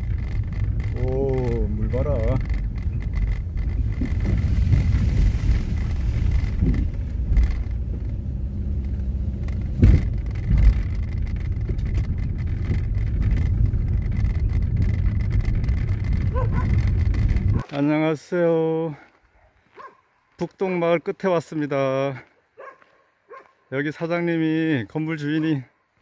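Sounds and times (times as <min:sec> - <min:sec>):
car jolts: 0:00.0 - 0:17.6
car engine and tyres rumbling: 0:00.0 - 0:20.0.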